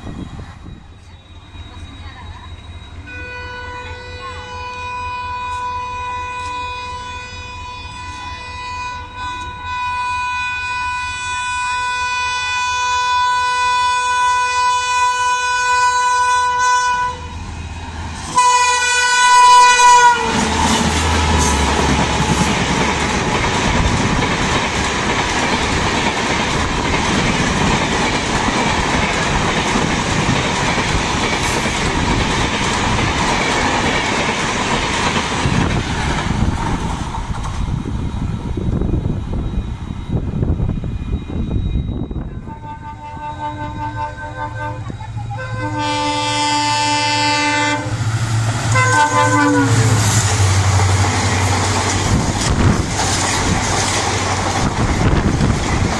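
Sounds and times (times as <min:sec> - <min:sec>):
train rumbling and clattering past: 0:00.0 - 0:55.9
train horn blasts: 0:03.1 - 0:17.5, 0:18.3 - 0:21.7, 0:42.2 - 0:48.1, 0:48.7 - 0:50.5.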